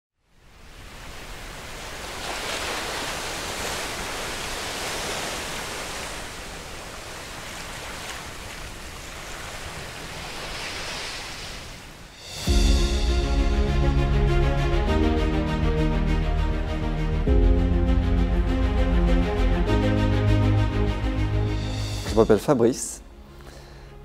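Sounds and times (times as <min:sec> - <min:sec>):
ocean waves and surf: 0:00.2 - 0:24.0
music: 0:12.2 - 0:24.0.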